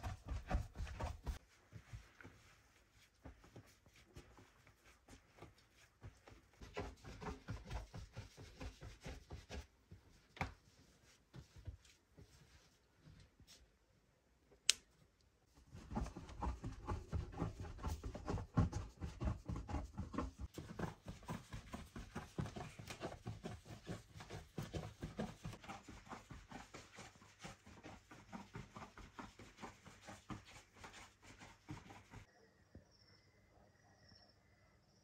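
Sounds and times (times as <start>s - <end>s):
dough kneaded with muffled thuds: 0.0s - 13.7s, 15.4s - 32.3s.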